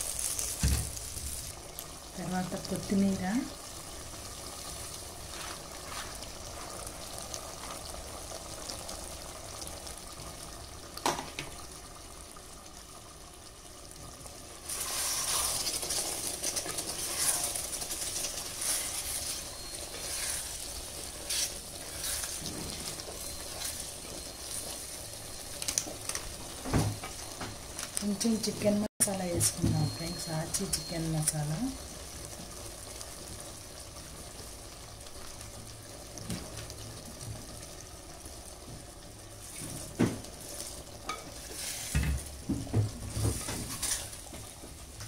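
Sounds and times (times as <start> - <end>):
curry simmering in clay pot: 0.0 - 45.0
sizzling: 0.0 - 45.0
ladle scraping and knocking pot: 43.0 - 44.1.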